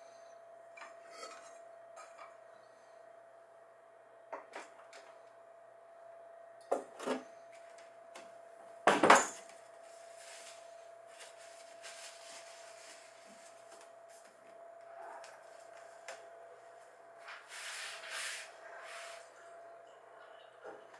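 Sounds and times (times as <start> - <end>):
faint steady hum: 0.0 - 20.9.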